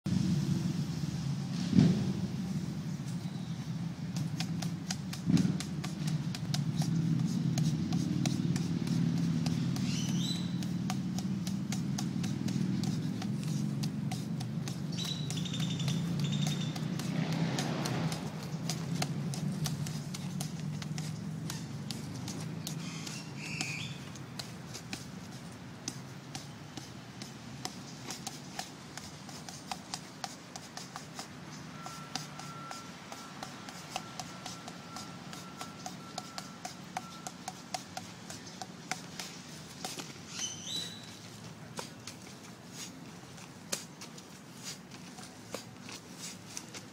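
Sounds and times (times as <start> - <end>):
background traffic rumble: 0.1 - 46.9
fists knocking on tree trunk: 4.1 - 40.2.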